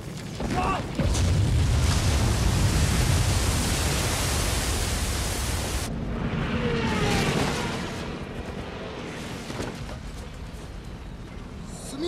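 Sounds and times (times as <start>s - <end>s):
loud rushing roar: 2.5s - 9.4s
propeller aircraft passing: 5.8s - 9.5s.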